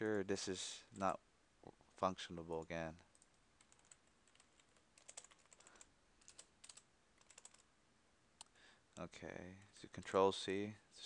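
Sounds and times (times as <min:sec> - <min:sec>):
faint keyboard typing: 0:02.5 - 0:07.7.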